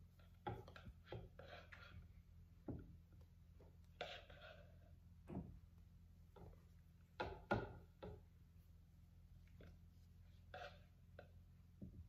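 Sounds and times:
spatula scraping glass jar: 0.2 - 2.1, 3.9 - 5.0, 10.3 - 11.4.

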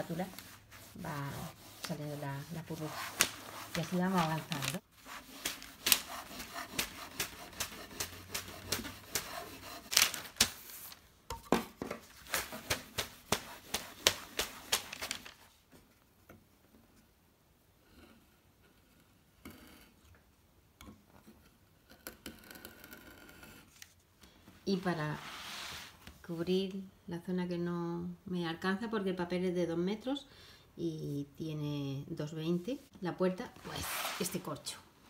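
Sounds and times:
vinyl film crinkling: 1.8 - 6.9, 9.8 - 11.0, 13.7 - 15.5.

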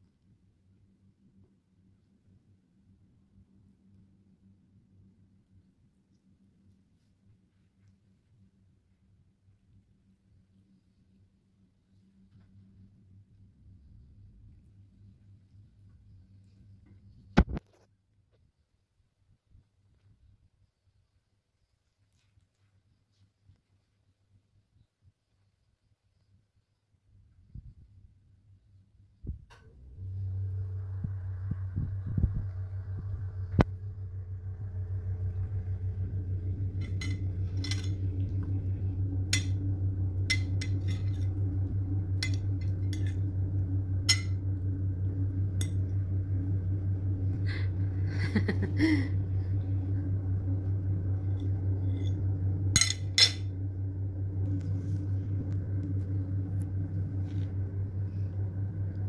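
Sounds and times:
fluttering low hum: 9.6 - 17.9, 27.3 - 59.0.

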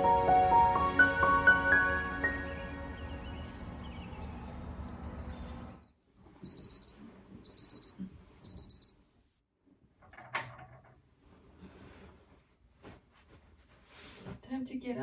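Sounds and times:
electronic alarm beeping: 3.5 - 8.9.

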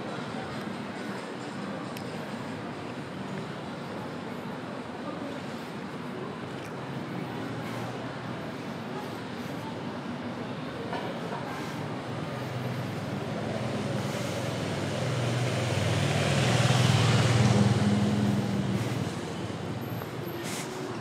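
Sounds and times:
street noise: 0.0 - 21.0
vehicle driving past: 12.1 - 20.2.

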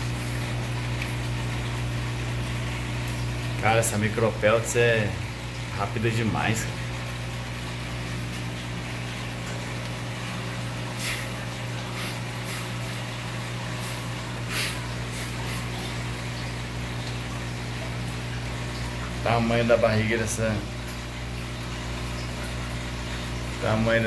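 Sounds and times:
aquarium pump humming: 0.0 - 24.0.

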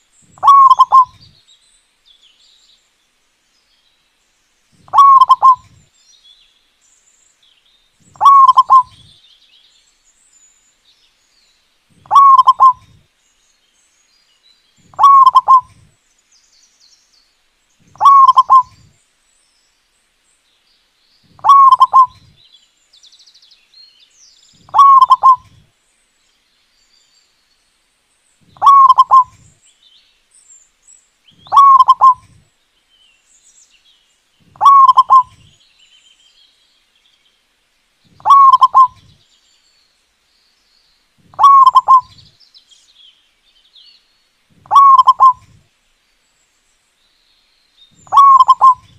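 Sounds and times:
small birds twittering: 0.0 - 48.9
dove cooing: 0.4 - 1.2, 4.8 - 5.8, 8.2 - 9.1, 12.0 - 13.0, 14.9 - 15.8, 18.0 - 18.9, 21.4 - 22.3, 24.7 - 25.6, 28.6 - 29.4, 31.4 - 32.4, 34.5 - 35.5, 38.2 - 39.2, 41.3 - 42.2, 44.6 - 45.6, 48.1 - 48.9.

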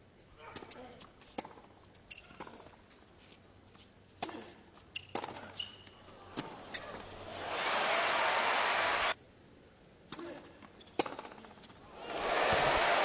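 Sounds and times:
shoes squeaking on court: 0.5 - 7.2, 10.6 - 11.8.

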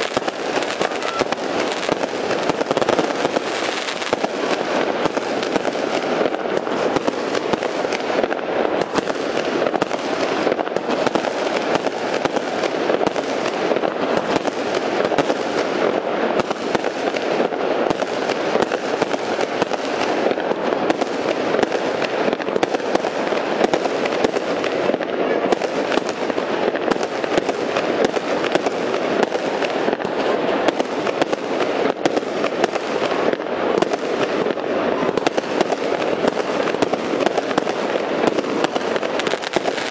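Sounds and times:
fireworks bangs and crackle: 0.0 - 39.9.

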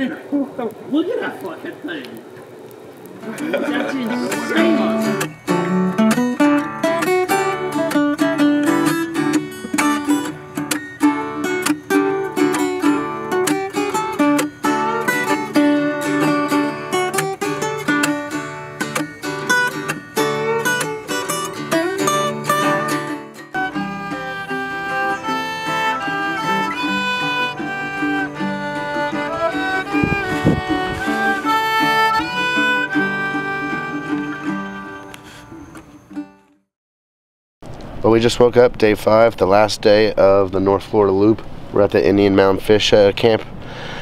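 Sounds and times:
acoustic guitar music: 0.0 - 36.7
fiddle melody: 3.3 - 36.6.

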